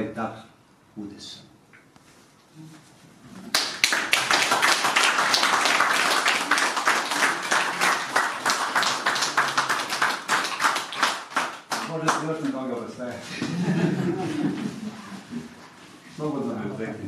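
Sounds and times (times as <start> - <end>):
audience applauding: 3.5 - 12.5.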